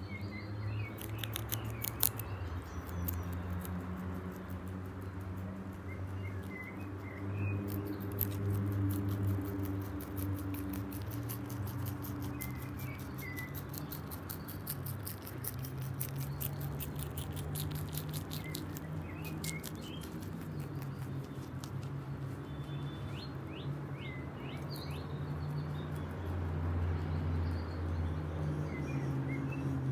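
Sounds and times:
rabbits crunching stems: 0.8 - 23.9
bird chirps: 5.8 - 9.1, 10.5 - 21.5, 22.2 - 26.3.

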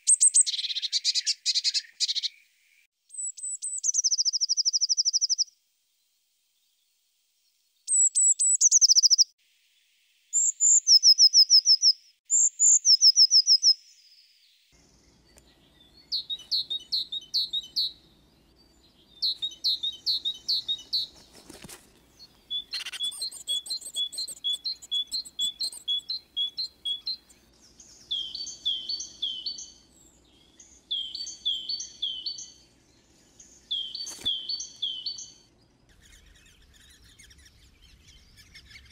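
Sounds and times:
songbirds trilling: 14.8 - 38.9.

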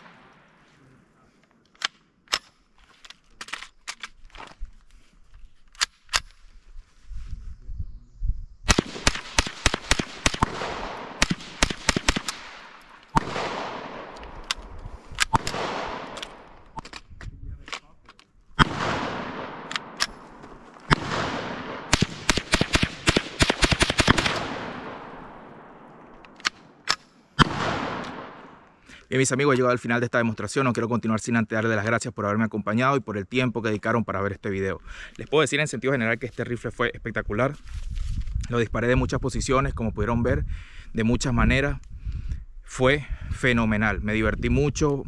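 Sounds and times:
rifle shots echoing: 0.0 - 0.8, 8.7 - 16.8, 18.6 - 28.8.

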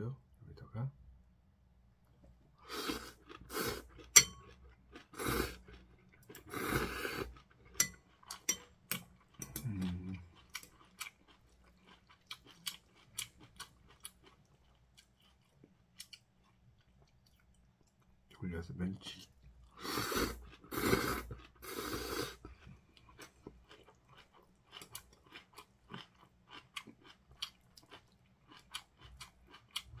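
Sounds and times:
man slurping noodles: 2.6 - 3.8, 5.2 - 5.6, 6.5 - 7.3, 19.8 - 22.4
crunchy chewing: 2.6 - 18.1, 19.6 - 30.0.

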